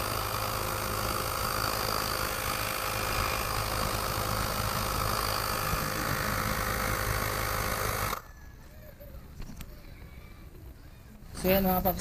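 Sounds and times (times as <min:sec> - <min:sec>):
electric compressor running: 0:00.0 - 0:08.3.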